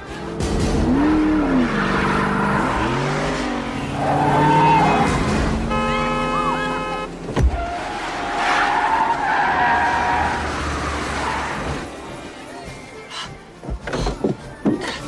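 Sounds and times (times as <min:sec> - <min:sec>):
car tyres squealing and skidding: 0:00.8 - 0:12.0
blaring multi-tone sound: 0:05.6 - 0:07.2.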